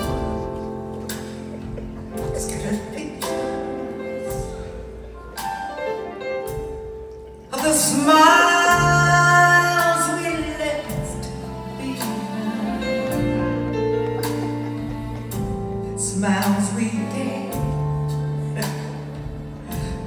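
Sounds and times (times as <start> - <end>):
band accompaniment: 0.0 - 20.0
woman singing into a microphone: 7.5 - 13.2.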